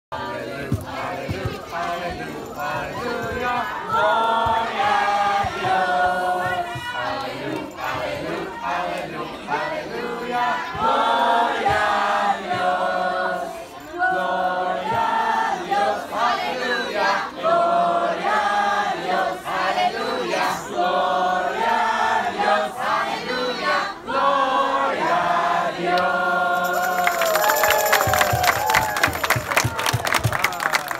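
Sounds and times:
crowd singing in unison: 0:00.1 - 0:29.8
people clapping: 0:26.0 - 0:30.9.

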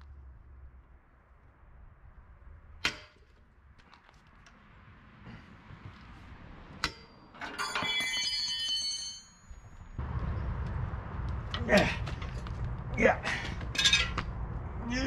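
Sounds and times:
breaker bar clanging and ringing: 0:06.8 - 0:09.7, 0:13.6 - 0:14.4
low rumble: 0:09.7 - 0:15.0.

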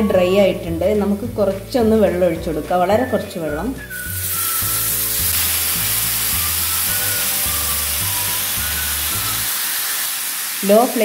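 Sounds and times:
background music with bass line: 0:00.0 - 0:09.5
loud sizzle in pan: 0:03.8 - 0:11.0.

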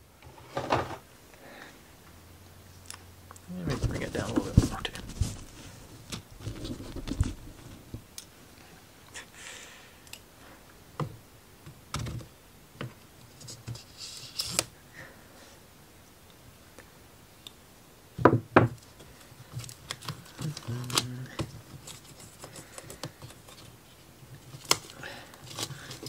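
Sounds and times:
plywood sheet knocking and scraping: 0:03.6 - 0:08.0, 0:18.2 - 0:18.8.

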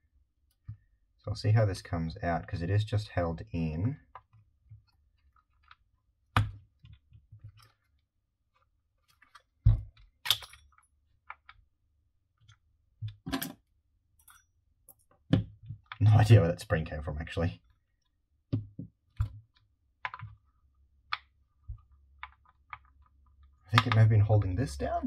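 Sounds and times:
plastic clicks and knocks: 0:18.5 - 0:24.1.

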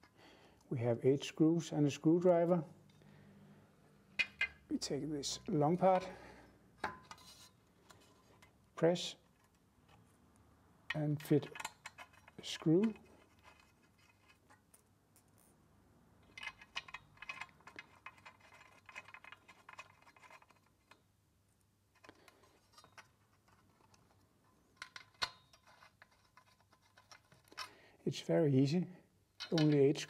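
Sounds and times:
metallic clicks of screws: 0:10.9 - 0:15.5, 0:16.2 - 0:21.0, 0:21.9 - 0:27.8, 0:29.4 - 0:30.0.

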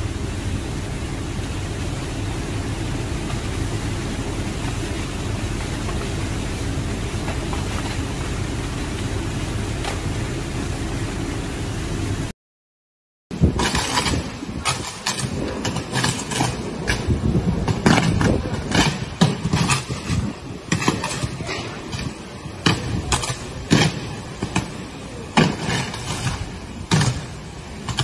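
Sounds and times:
power lines arcing and sparking: 0:00.0 - 0:12.3, 0:13.3 - 0:28.0
wind and rain buffeting microphone: 0:00.0 - 0:12.3, 0:13.3 - 0:28.0.

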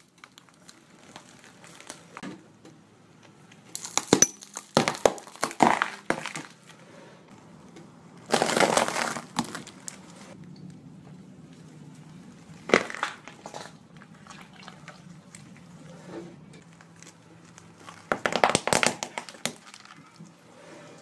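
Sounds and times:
tyre crunching a leaf: 0:00.0 - 0:02.2, 0:08.3 - 0:10.4
sharp cracks and pops: 0:00.0 - 0:02.3, 0:03.5 - 0:06.6, 0:08.2 - 0:10.8, 0:12.6 - 0:13.8, 0:16.6 - 0:20.2.

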